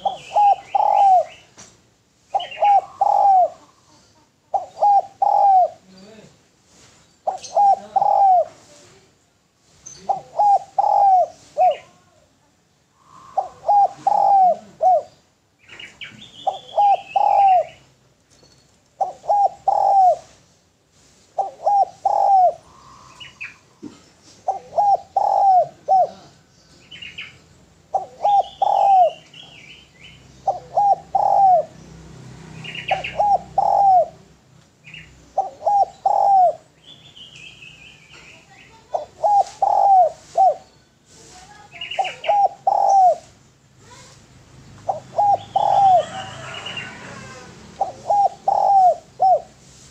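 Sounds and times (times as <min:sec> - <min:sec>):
dove cooing: 0:00.0 - 0:01.5, 0:02.3 - 0:06.0, 0:07.2 - 0:08.7, 0:10.0 - 0:12.2, 0:13.0 - 0:17.9, 0:19.0 - 0:20.4, 0:21.3 - 0:26.5, 0:27.2 - 0:29.7, 0:30.4 - 0:31.8, 0:32.6 - 0:36.8, 0:38.7 - 0:40.6, 0:41.4 - 0:43.4, 0:44.8 - 0:49.9
small birds chirping: 0:00.0 - 0:49.9.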